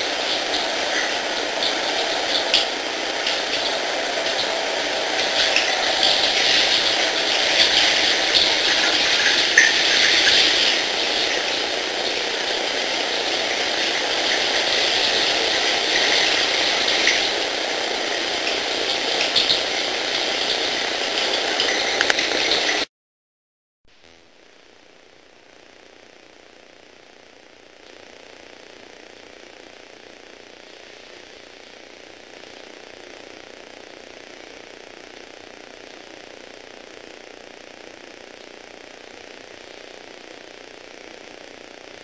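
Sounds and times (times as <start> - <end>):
shower spray hissing: 0.0 - 22.9.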